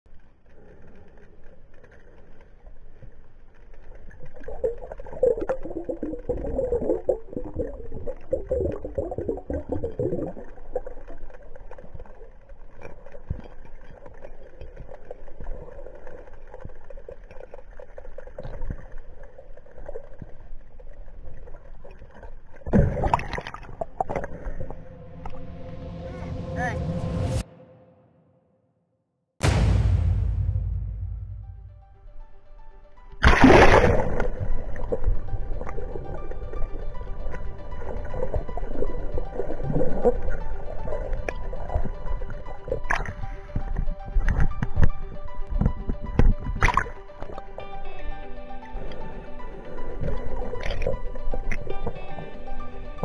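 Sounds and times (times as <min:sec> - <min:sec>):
muffled underwater water noise: 0:00.1 - 0:26.2, 0:33.0 - 0:53.0
bubbling: 0:01.3 - 0:24.9.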